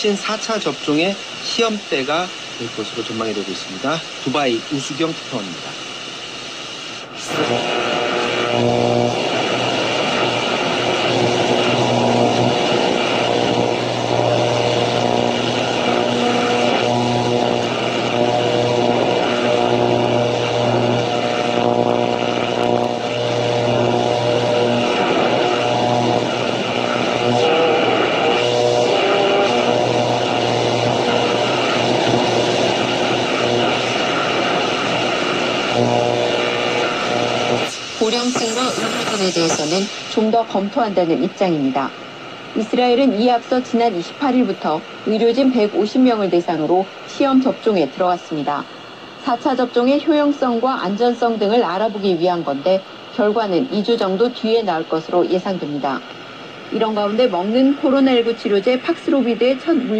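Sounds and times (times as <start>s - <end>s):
radio static hiss: 0.0s - 59.9s
held radio tones: 4.9s - 42.0s
low hum: 6.4s - 42.6s.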